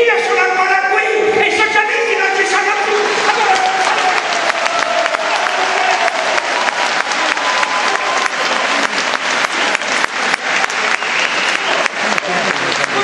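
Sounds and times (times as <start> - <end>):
audience applauding: 2.4 - 13.0.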